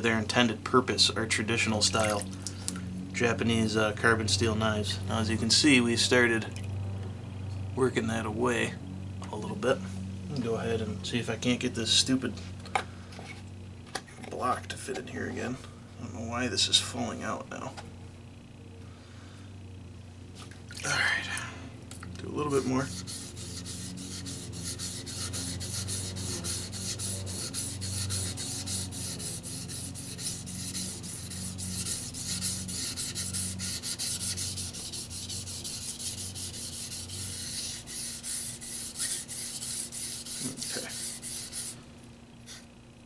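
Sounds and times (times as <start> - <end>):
knife scraping on whetstone: 22.8 - 41.8.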